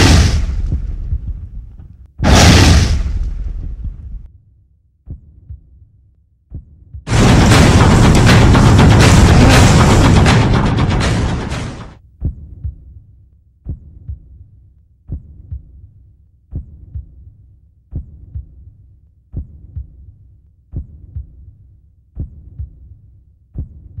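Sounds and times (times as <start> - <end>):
heartbeat thumps: 0.0 - 4.3, 5.1 - 5.9, 6.5 - 13.0, 13.6 - 14.4, 15.1 - 15.9, 16.5 - 17.3, 17.9 - 18.7, 19.3 - 20.1, 20.7 - 21.5, 22.2 - 23.0, 23.6 - 24.0
loud music burst: 7.1 - 11.9.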